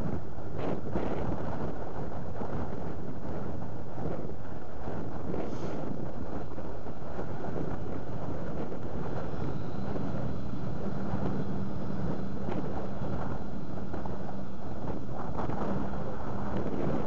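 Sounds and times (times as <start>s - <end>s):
wind noise on microphone: 0.0s - 17.0s
boat diesel engines droning: 7.0s - 17.0s.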